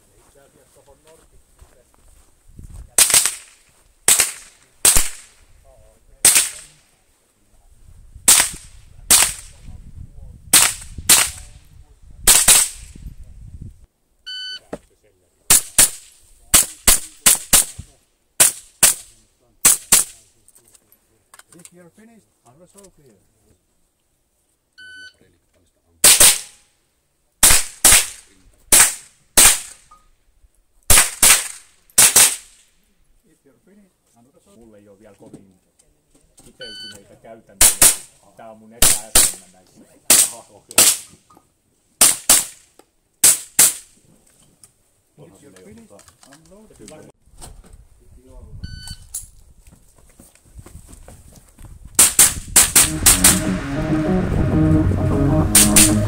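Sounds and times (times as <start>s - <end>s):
rifle shots: 3.0s - 5.4s, 6.2s - 6.7s, 8.3s - 9.5s, 10.5s - 11.5s, 12.3s - 12.8s, 26.0s - 26.5s, 27.4s - 29.8s, 30.9s - 32.5s, 52.0s - 53.4s.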